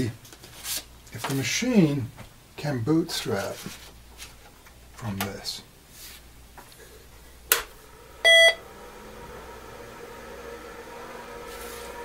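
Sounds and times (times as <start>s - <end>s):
computer fan hum: 0.0s - 12.0s
short loud beep: 8.2s - 8.6s.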